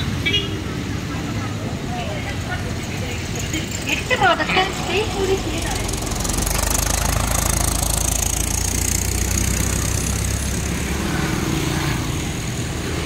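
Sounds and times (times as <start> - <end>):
machinery rumbling: 2.7 - 10.9.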